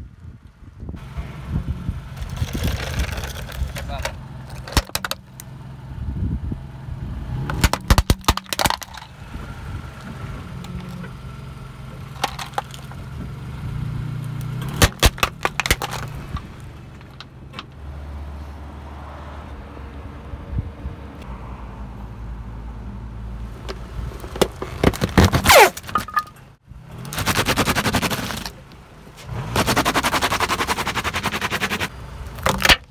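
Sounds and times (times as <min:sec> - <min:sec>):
plastic toy cracking under tyre: 0:02.2 - 0:05.2, 0:07.5 - 0:09.1, 0:12.2 - 0:13.0, 0:14.7 - 0:17.3, 0:24.2 - 0:26.1, 0:27.1 - 0:28.6, 0:32.4 - 0:32.9
car engine humming low: 0:08.9 - 0:18.0.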